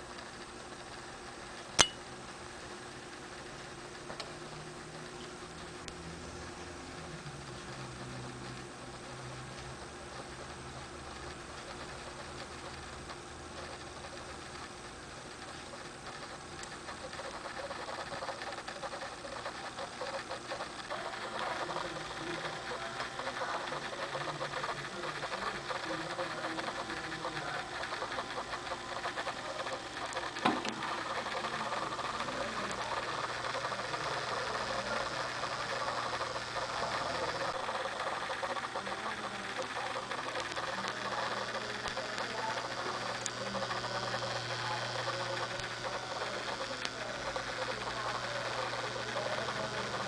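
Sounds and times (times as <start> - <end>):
aquarium pump humming: 0.0 - 50.0
sharp click: 1.8 - 2.0.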